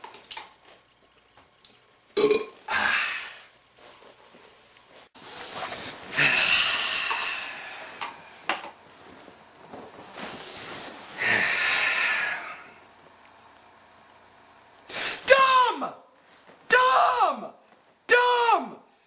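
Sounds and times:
man exhaling loudly: 2.7s - 3.5s, 6.1s - 8.3s, 11.2s - 12.8s
small movement sounds: 7.2s - 11.2s.

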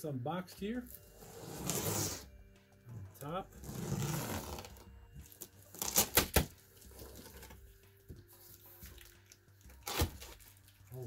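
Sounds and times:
packing tape peeling and ripping: 0.9s - 2.2s, 3.6s - 7.6s, 8.5s - 10.9s.

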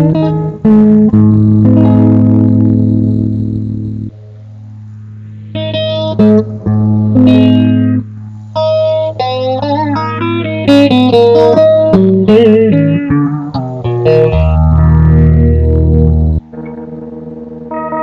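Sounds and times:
electric guitar melody: 0.0s - 18.0s.

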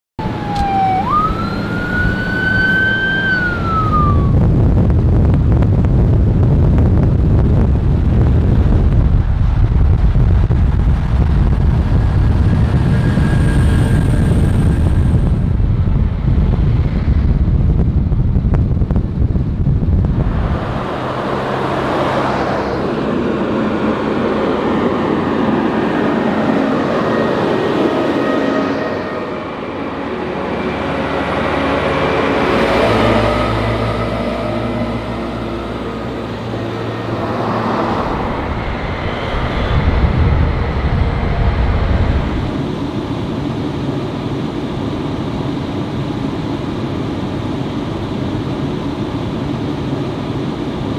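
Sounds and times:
siren wailing: 0.2s - 4.9s, 24.8s - 40.6s
military trucks driving past: 0.2s - 6.1s, 19.9s - 44.1s
road noise: 0.2s - 50.9s.

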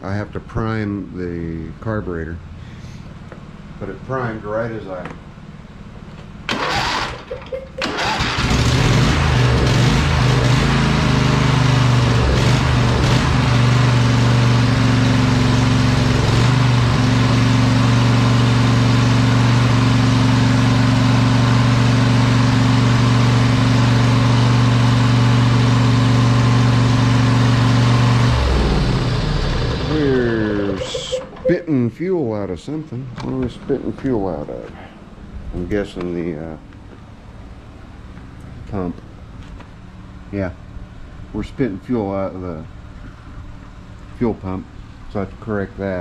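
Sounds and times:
lawn tractor engine running: 6.5s - 24.4s.

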